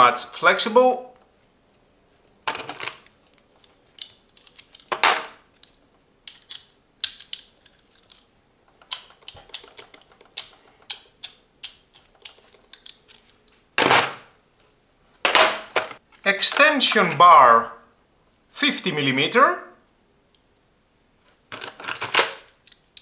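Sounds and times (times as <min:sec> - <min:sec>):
metal sockets clicking and clinking: 0:02.5 - 0:13.6.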